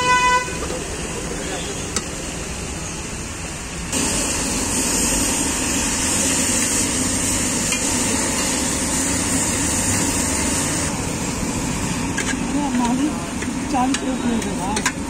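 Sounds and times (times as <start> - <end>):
food sizzling loudly on iron pan: 3.9 - 12.7.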